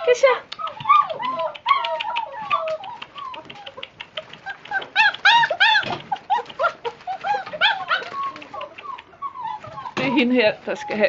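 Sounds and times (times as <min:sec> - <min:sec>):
puppies whining and yelping: 0:00.0 - 0:11.0
clicks and rustles: 0:00.5 - 0:11.0.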